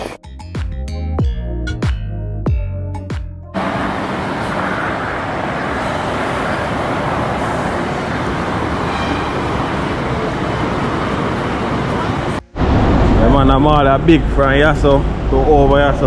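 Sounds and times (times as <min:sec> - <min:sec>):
cars passing on highway: 0:03.6 - 0:16.0.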